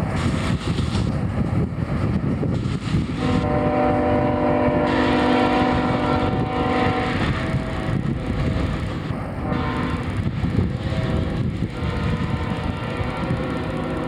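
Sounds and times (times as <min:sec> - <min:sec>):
train rumbling along track: 0:00.0 - 0:14.0
locomotive air horn chord: 0:03.2 - 0:08.7, 0:09.4 - 0:14.0.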